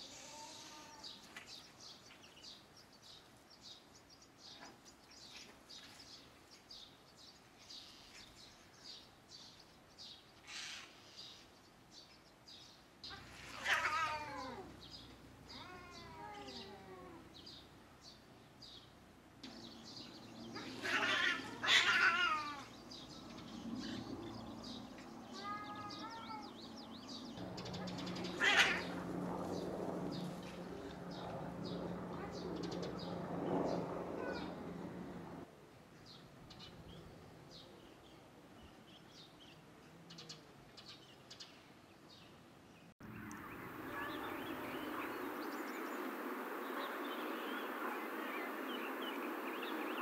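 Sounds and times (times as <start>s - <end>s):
cats yowling: 13.1s - 14.8s, 15.5s - 17.3s, 20.6s - 22.8s, 25.2s - 26.7s, 28.1s - 29.1s, 34.2s - 34.7s.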